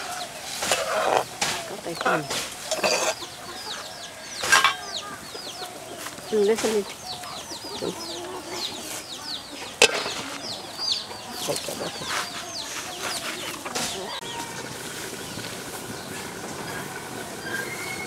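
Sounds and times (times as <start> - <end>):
chickens clucking and chirping: 0.0 - 18.0
metal lid clanking on pot: 2.7 - 3.2, 4.4 - 4.9.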